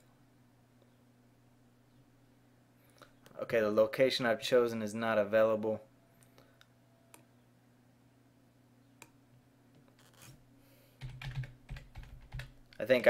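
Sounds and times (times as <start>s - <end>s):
faint low hum: 0.0s - 13.0s
keyboard typing: 11.0s - 12.6s.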